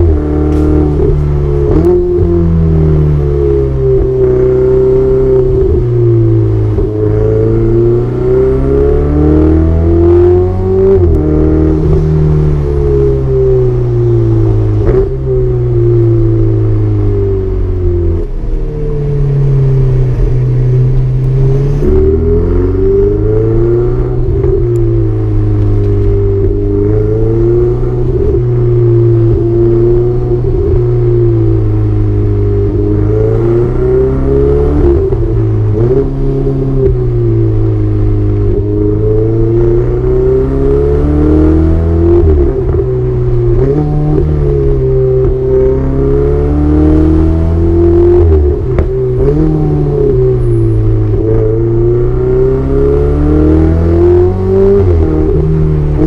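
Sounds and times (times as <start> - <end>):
car engine revving: 0.0 - 56.0.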